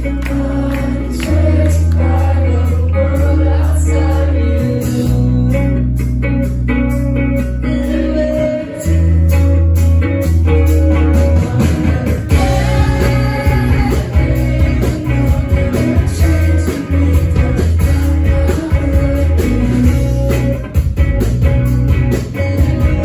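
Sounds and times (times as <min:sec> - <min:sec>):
woman singing lead vocal: 0:00.0 - 0:05.5, 0:07.6 - 0:09.2, 0:11.4 - 0:20.0
bass guitar: 0:00.0 - 0:23.0
drums: 0:00.0 - 0:23.0
electric guitars: 0:00.0 - 0:23.0.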